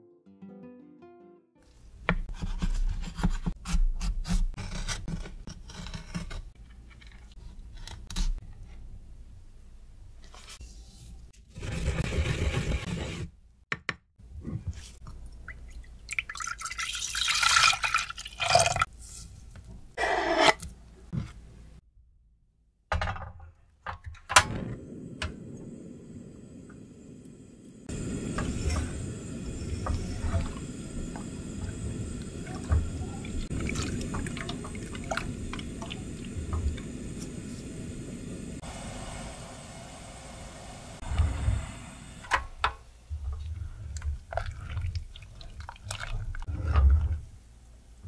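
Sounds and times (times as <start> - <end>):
liquid pouring: 15.4 - 18.9, 32.4 - 36.4
gas burner hissing: 24.4 - 42.6.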